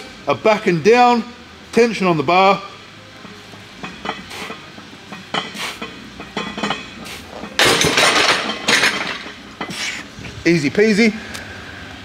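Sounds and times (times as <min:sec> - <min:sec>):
barbell plates clinking: 0:03.8 - 0:09.8
barbell clanking into rack: 0:06.3 - 0:09.4.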